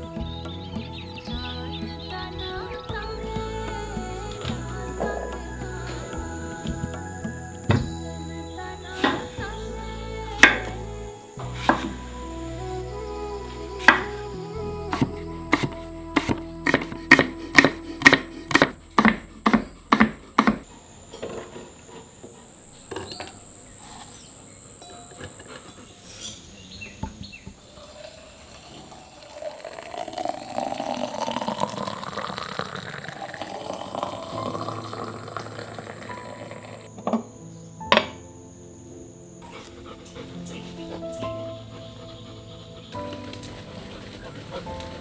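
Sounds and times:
liquid pouring into glass: 28.0 - 36.9.

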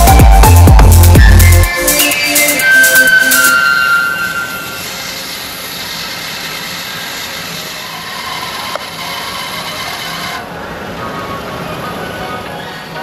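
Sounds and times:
bandsaw cutting wood: 4.4 - 10.5.

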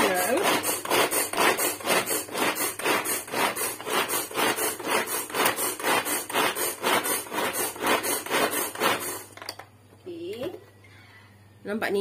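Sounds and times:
pull-cord food chopper rasping: 0.0 - 9.4.

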